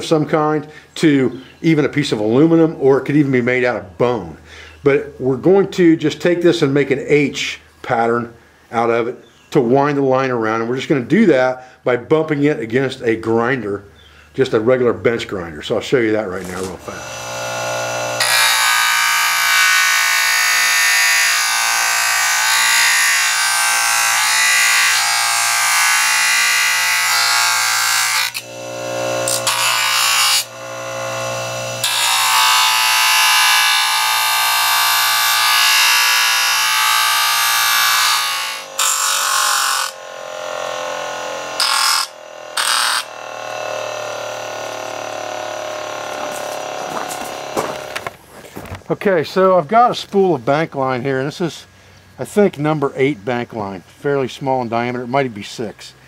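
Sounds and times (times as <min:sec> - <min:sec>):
wood grinding on grinder wheel: 0:16.2 - 0:48.8
bench grinder motor hum: 0:16.4 - 0:48.1.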